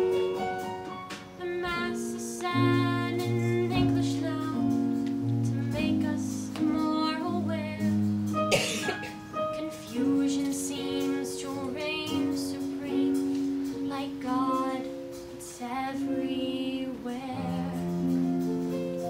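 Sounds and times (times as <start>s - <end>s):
soft instrumental accompaniment: 0.0s - 19.0s
woman singing: 1.4s - 8.2s, 9.3s - 19.0s.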